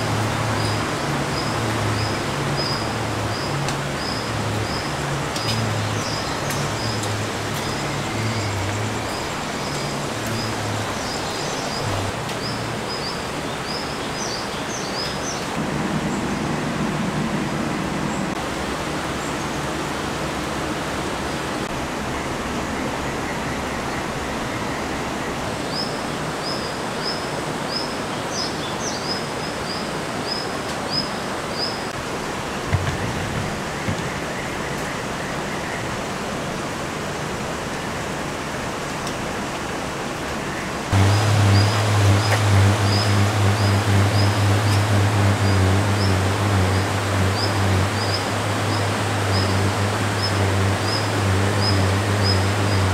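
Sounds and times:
flowing water: 0.0 - 52.9
knocks: 32.7 - 34.2.

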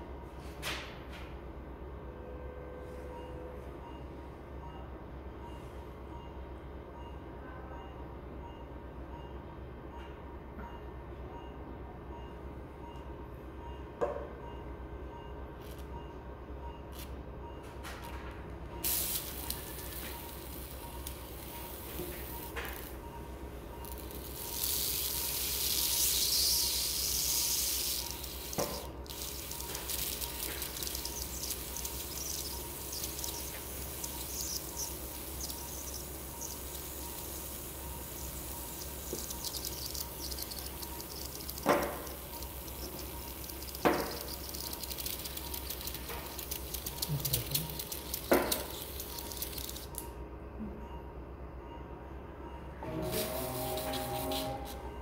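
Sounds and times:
hiss: 18.8 - 22.9, 24.0 - 49.9, 53.0 - 54.8
sharp clicks: 28.6 - 37.2, 38.8 - 50.1.

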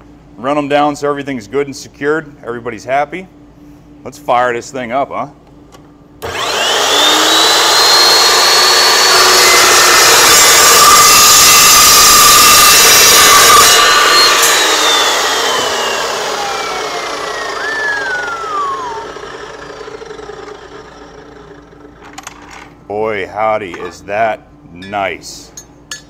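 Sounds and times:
saw cutting steel: 6.2 - 22.0
saw blade winding down: 6.2 - 22.3.

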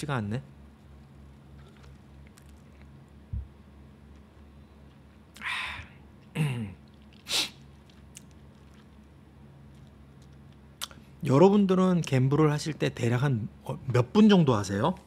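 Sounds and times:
faint low hum: 0.0 - 15.0
short low thump: 3.3 - 3.5
man's breathy sneeze-like bursts: 7.2 - 7.6.

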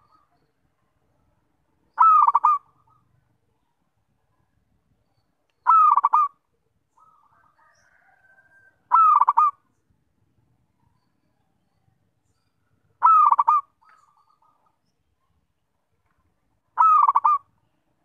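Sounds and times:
dove cooing: 1.9 - 3.1, 5.7 - 6.4, 7.0 - 9.6, 12.8 - 14.7, 16.8 - 17.6.

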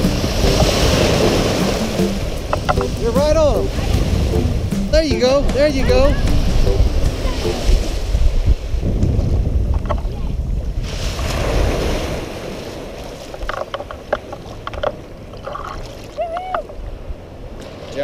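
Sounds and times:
small surf washing: 0.0 - 18.0
wind buffeting microphone: 0.0 - 18.0.

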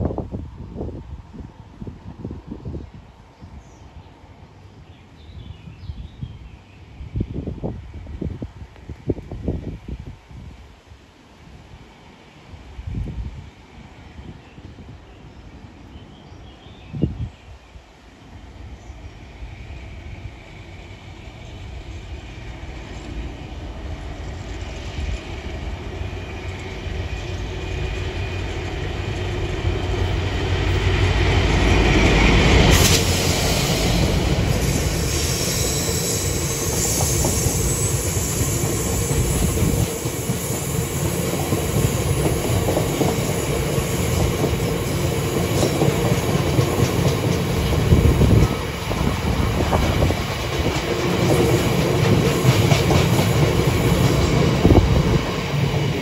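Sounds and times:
diesel locomotive passing: 17.5 - 56.0.

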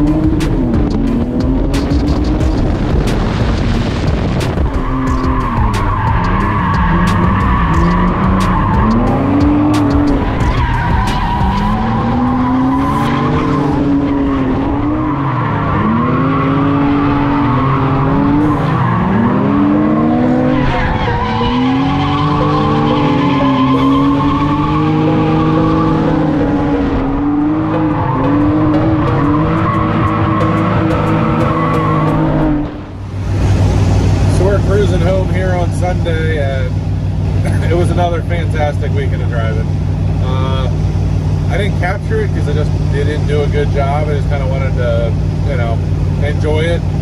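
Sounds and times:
car engines revving: 0.0 - 47.0
tire squeal: 4.4 - 32.8.

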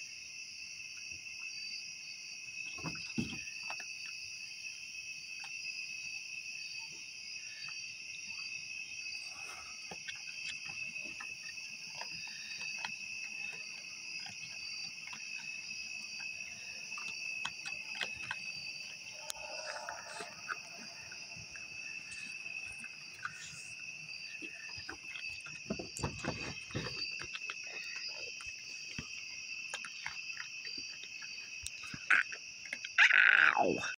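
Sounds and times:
night insects chorus: 0.0 - 33.9
small clicks and scuffs: 9.7 - 32.9.

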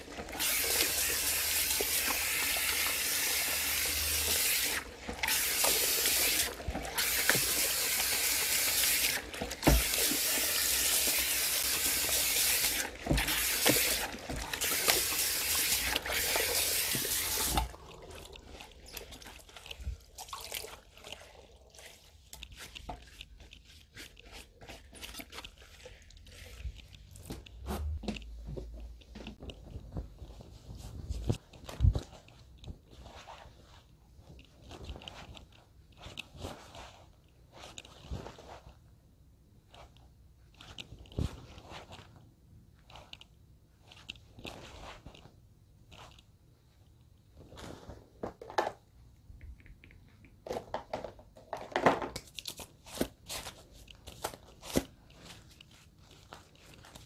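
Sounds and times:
hand sprayer water hissing: 0.4 - 17.7
hands rustling wet hair: 11.4 - 28.0.

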